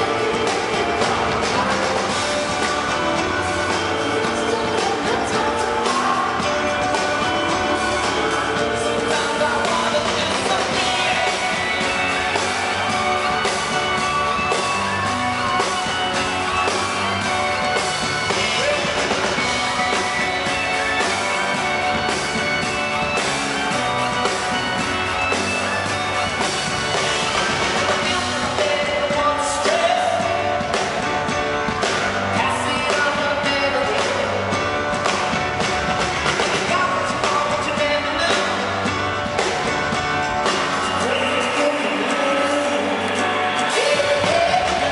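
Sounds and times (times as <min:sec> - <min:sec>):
male singer singing: 0:00.0 - 0:13.0, 0:18.4 - 0:19.2, 0:28.0 - 0:30.9, 0:32.3 - 0:34.6, 0:36.5 - 0:38.8, 0:40.9 - 0:44.9
keyboard: 0:00.0 - 0:44.9.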